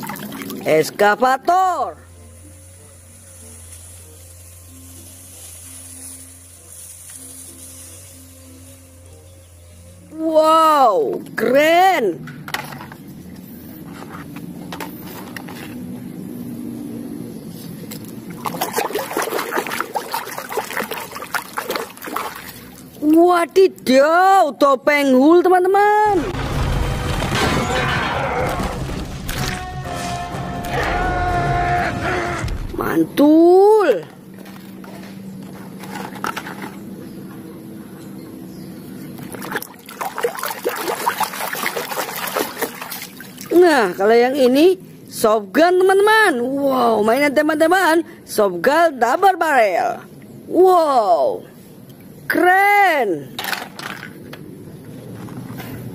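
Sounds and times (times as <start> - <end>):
water sloshing in plastic tub: 0.0 - 0.9, 17.9 - 23.0, 39.2 - 43.8.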